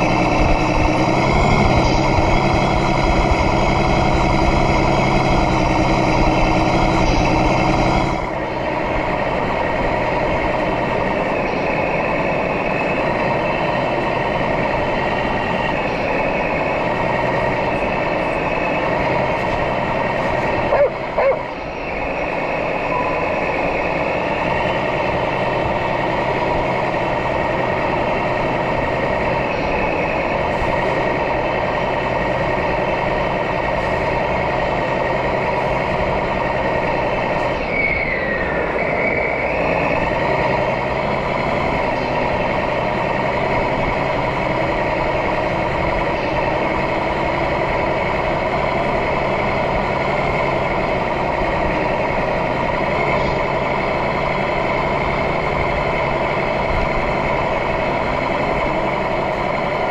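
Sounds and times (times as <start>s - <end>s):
simulated diesel engine from speaker: 0.0s - 59.9s
falling whistle: 37.5s - 40.4s.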